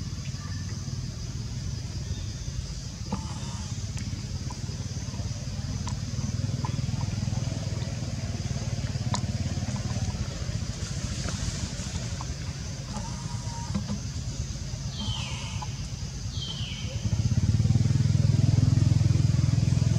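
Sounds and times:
vehicle engine rumbling: 0:00.0 - 0:19.9
faint clicks: 0:08.9 - 0:10.2.

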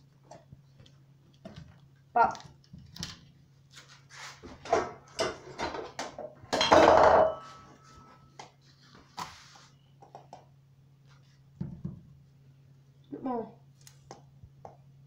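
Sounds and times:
low steady hum: 0:00.0 - 0:15.0
utensils and dishes clattering: 0:04.7 - 0:07.8.

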